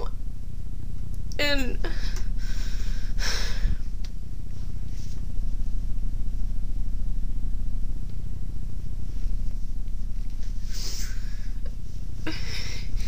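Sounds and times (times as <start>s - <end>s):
low rumble with rapid flutter: 0.0s - 13.0s
breathy sniff: 10.6s - 11.5s.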